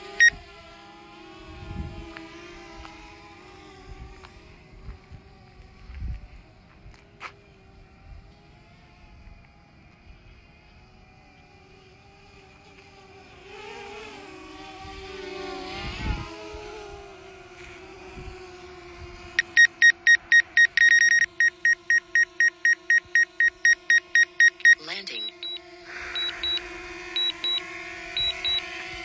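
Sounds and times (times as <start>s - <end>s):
drone propellers humming: 0.0s - 29.0s
rapid electronic beeps: 19.4s - 25.6s, 26.2s - 26.6s, 27.2s - 27.6s, 28.2s - 28.6s.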